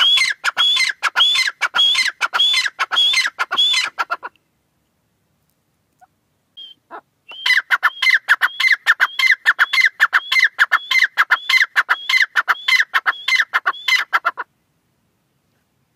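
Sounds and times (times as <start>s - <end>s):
bird calling shrill repeated notes: 0.0s - 4.3s, 6.6s - 14.4s.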